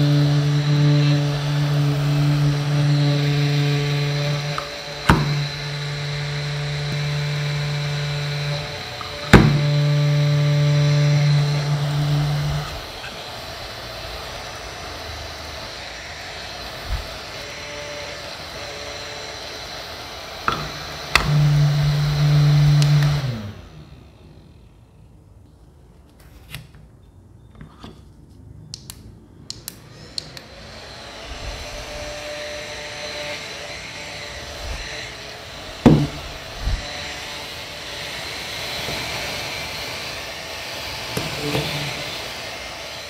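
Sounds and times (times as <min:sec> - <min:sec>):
handheld fan motor whirring: 0:00.0 - 0:24.7, 0:29.5 - 0:43.0.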